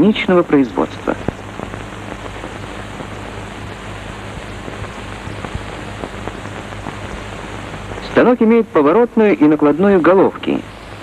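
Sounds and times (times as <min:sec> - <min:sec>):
faint crackles: 0:00.0 - 0:11.0
low steady hum: 0:00.0 - 0:11.0
steady hiss: 0:00.0 - 0:11.0.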